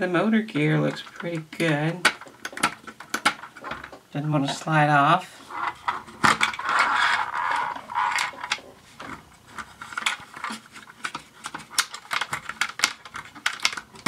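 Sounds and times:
plastic clicks and taps: 0:00.5 - 0:04.0
rubbing on plastic: 0:05.4 - 0:14.0.

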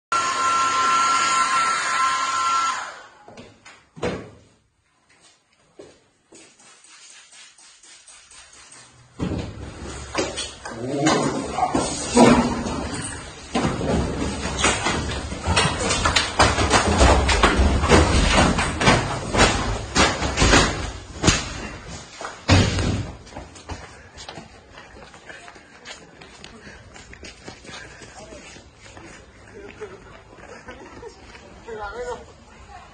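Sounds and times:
hair dryer blowing with whine: 0:00.1 - 0:03.2
knocks and thump: 0:09.2 - 0:10.4, 0:11.0 - 0:21.8, 0:22.4 - 0:23.8.

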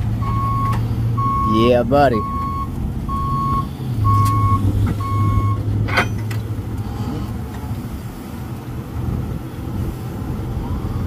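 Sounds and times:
truck engine running: 0:00.0 - 0:11.0
back-up alarm beeping: 0:00.2 - 0:05.6.

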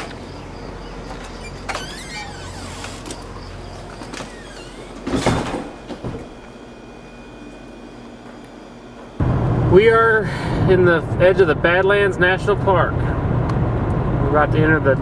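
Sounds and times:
low outdoor hum: 0:00.0 - 0:15.0
door squeaky scrape: 0:01.1 - 0:05.8
door thump: 0:04.5 - 0:06.4.

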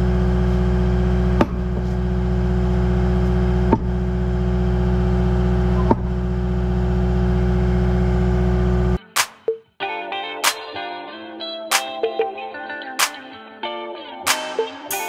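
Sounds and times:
diesel engine running: 0:00.0 - 0:09.0
steady hum: 0:00.0 - 0:09.0.

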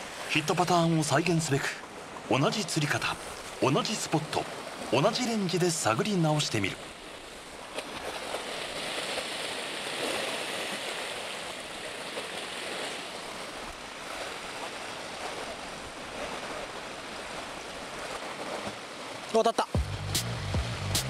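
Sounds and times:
sea surf washing against concrete: 0:00.0 - 0:06.8.

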